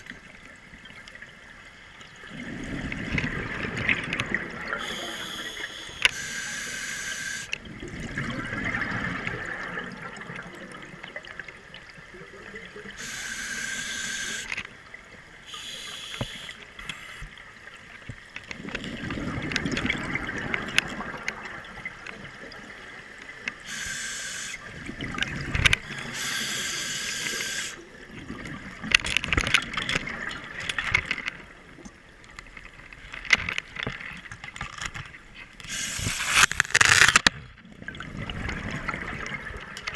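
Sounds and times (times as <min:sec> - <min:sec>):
gurgling exhaled bubbles: 0:02.2 - 0:05.6, 0:07.6 - 0:11.5, 0:18.6 - 0:22.7, 0:24.6 - 0:29.0, 0:35.7 - 0:39.9
regulator hissing inhale: 0:04.8 - 0:07.5, 0:13.0 - 0:14.5, 0:15.5 - 0:17.3, 0:23.6 - 0:24.6, 0:26.0 - 0:27.8, 0:35.7 - 0:36.5.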